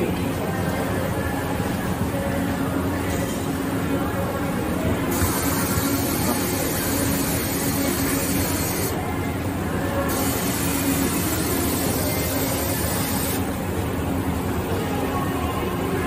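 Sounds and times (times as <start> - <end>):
machinery humming: 0.0 - 16.0.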